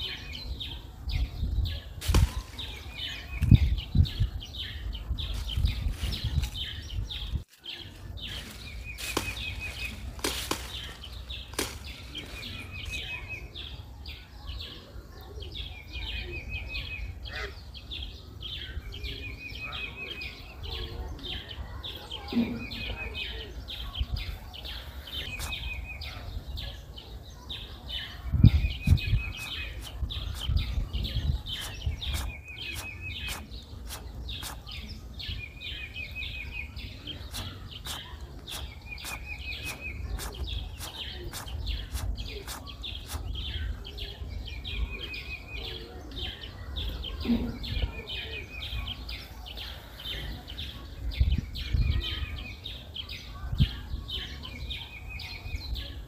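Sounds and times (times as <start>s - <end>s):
chirping and clicking: 24.8s - 26.2s, 28.4s - 35.0s, 36.4s - 44.0s.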